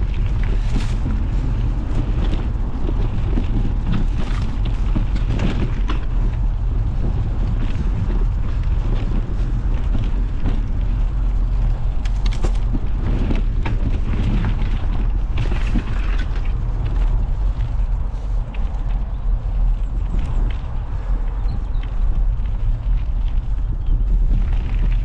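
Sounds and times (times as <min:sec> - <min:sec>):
bike tyres rolling on gravel: 0:00.0 - 0:25.0
wind buffeting microphone: 0:00.0 - 0:25.0
clicks and rattles: 0:11.5 - 0:17.8.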